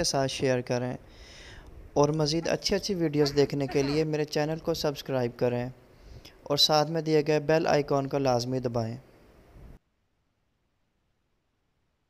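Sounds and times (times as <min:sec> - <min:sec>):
faint steady hiss: 0:00.0 - 0:09.8.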